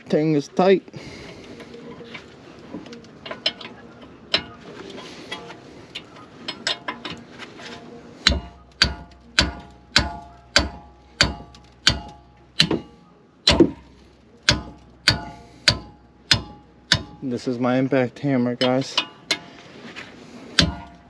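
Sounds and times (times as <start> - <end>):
hammer striking steel: 8.2 - 17.2, 20.6 - 21.0.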